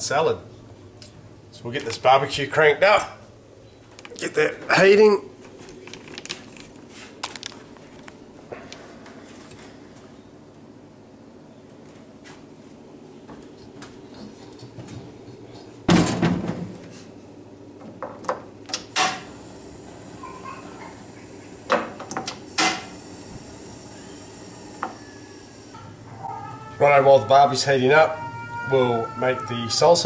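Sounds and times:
metal barbecue hood clunk: 0:15.9 - 0:16.8.

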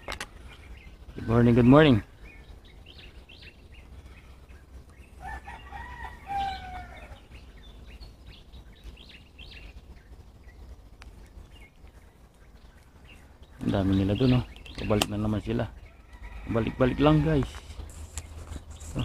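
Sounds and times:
small birds chirping: 0:00.0 - 0:19.0
rooster crowing: 0:05.2 - 0:07.3, 0:15.8 - 0:17.6.

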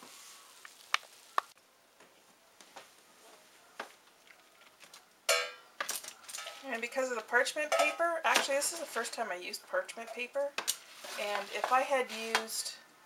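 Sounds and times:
utensils tapping on baking pan: 0:07.7 - 0:08.7.

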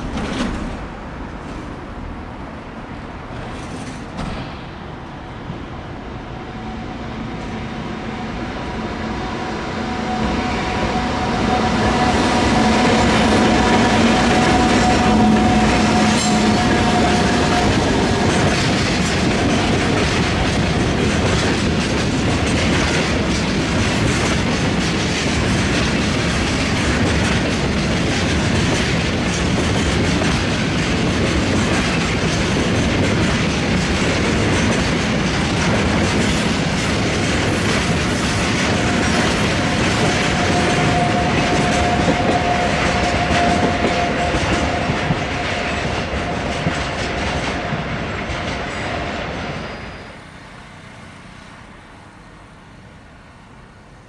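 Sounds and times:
wheels clacking over rail joints: 0:00.0 - 0:01.0, 0:12.0 - 0:49.8
freight train rumbling past: 0:00.0 - 0:54.0.

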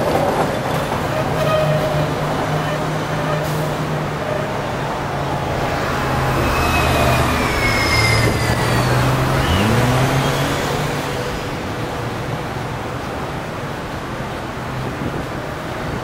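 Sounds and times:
buses passing: 0:00.0 - 0:16.0
engine note rising: 0:05.2 - 0:11.1
high whines falling in pitch: 0:05.5 - 0:10.9.

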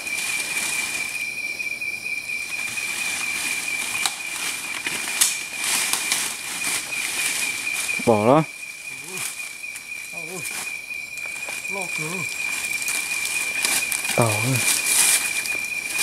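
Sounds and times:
insect high-pitched trill: 0:00.0 - 0:16.0
rustling and snapping brush: 0:02.8 - 0:08.0, 0:09.0 - 0:16.0.

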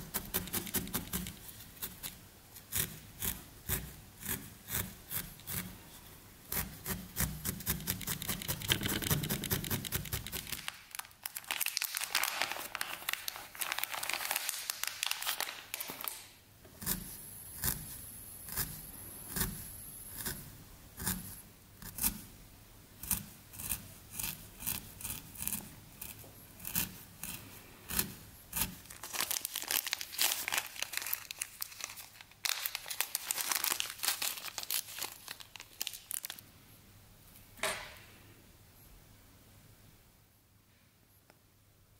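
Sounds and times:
plastic bag crinkling: 0:08.5 - 0:16.4, 0:28.8 - 0:36.4.

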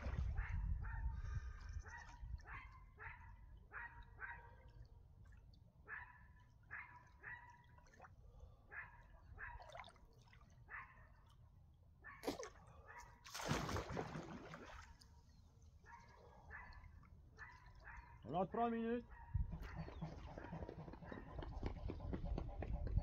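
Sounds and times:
dog yipping: 0:05.9 - 0:07.6, 0:10.7 - 0:11.0, 0:12.0 - 0:12.3
water splashing: 0:12.2 - 0:15.2.

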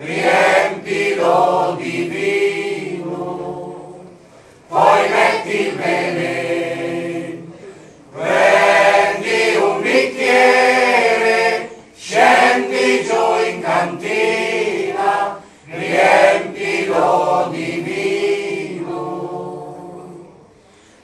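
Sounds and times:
mixed choir singing: 0:00.0 - 0:20.6
singers breathing: 0:04.2 - 0:04.7, 0:07.5 - 0:08.1, 0:15.4 - 0:15.7, 0:20.5 - 0:21.0.

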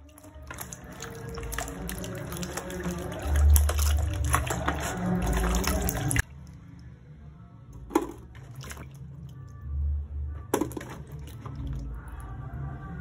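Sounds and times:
water sloshing in a bowl: 0:00.0 - 0:06.6, 0:07.8 - 0:09.6, 0:10.4 - 0:12.4
water splashing and dripping: 0:00.0 - 0:06.6, 0:07.8 - 0:09.4, 0:10.5 - 0:12.2
sharp splash or knock: 0:00.4 - 0:06.2, 0:10.5 - 0:11.4.

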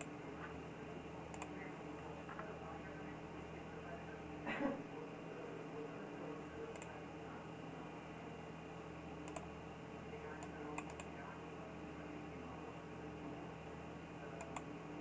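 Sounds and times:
electrical hum and hiss: 0:00.0 - 0:15.0
computer mouse clicks: 0:01.3 - 0:01.6, 0:06.7 - 0:07.0, 0:09.2 - 0:09.5, 0:10.4 - 0:11.1, 0:14.4 - 0:14.7.

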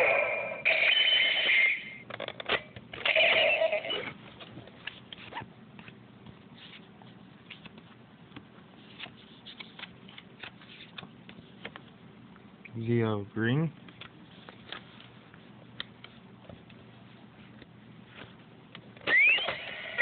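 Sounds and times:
toy electronic sound effects: 0:00.0 - 0:02.0, 0:03.0 - 0:04.1, 0:19.1 - 0:20.0.

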